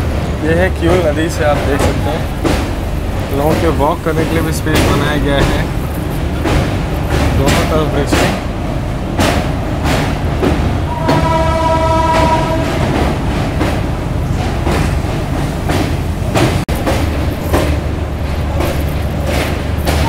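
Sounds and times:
train rumbling over bridge: 0.0s - 20.0s
wheels clacking over rail joints: 0.0s - 20.0s
train horn: 10.9s - 13.0s.

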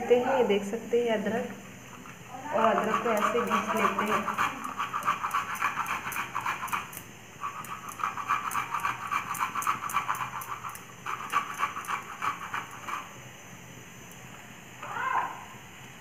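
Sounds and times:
ginger rasping on grater: 2.5s - 13.1s.

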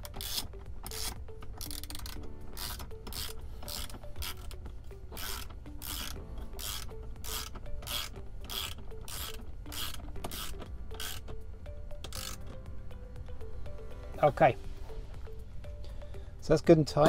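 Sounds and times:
ratchet clicking: 0.0s - 11.4s, 12.0s - 12.6s.

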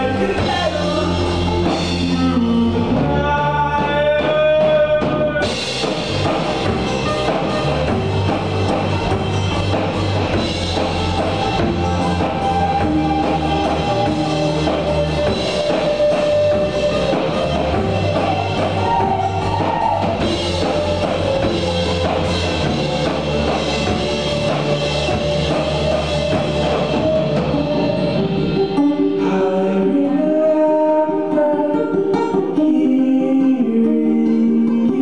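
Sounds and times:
drum kit: 0.0s - 35.0s
electric bass guitar: 0.0s - 35.0s
banjo: 4.3s - 35.0s
people singing: 10.8s - 24.0s, 28.8s - 35.0s.

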